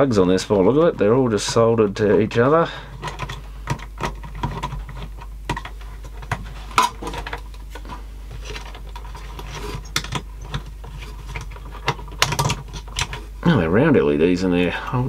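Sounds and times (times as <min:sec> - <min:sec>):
plastic panel clicks and rattles: 0:03.0 - 0:07.5, 0:11.3 - 0:13.2.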